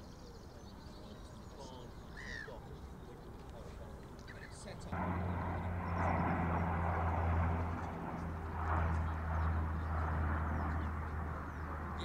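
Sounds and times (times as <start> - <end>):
boat engine humming: 5.0 - 12.0.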